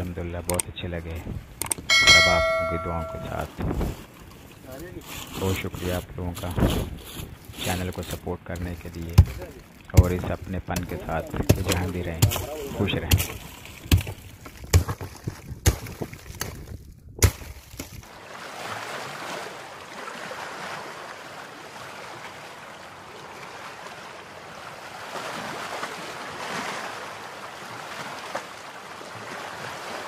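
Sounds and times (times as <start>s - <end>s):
sharp knocks: 1.9s - 3.4s.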